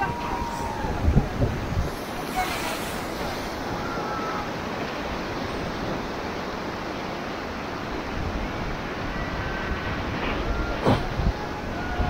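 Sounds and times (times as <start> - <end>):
river rapids roaring: 0.0 - 12.0
wind buffeting microphone: 0.0 - 12.0.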